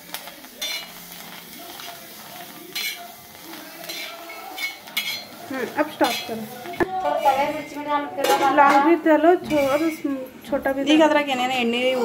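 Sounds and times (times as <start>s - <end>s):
chillies sizzling in pan: 0.0s - 12.0s
metal spatula scraping pan: 3.8s - 10.1s.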